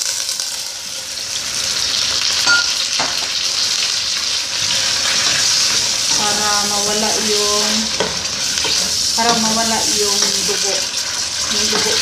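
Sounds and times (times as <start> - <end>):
chicken sizzling in hot oil: 0.0 - 12.0
spatula scraping a pot: 7.0 - 12.0.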